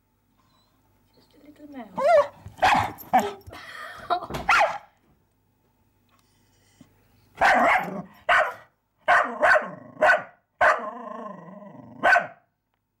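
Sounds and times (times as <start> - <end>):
small dog barking: 2.0 - 3.4, 4.5 - 4.9, 7.4 - 10.9, 12.0 - 12.5.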